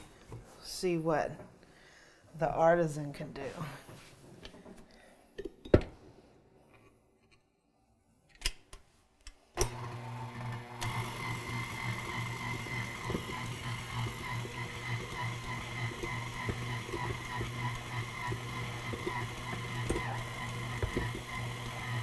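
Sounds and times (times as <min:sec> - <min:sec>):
stand mixer motor running: 0:09.6 - 0:22.0.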